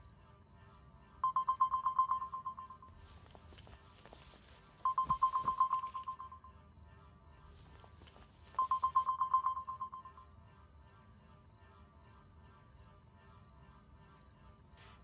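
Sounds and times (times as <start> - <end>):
phone ringing electronic trill: 1.2 - 3.2, 4.8 - 6.5, 8.6 - 10.2.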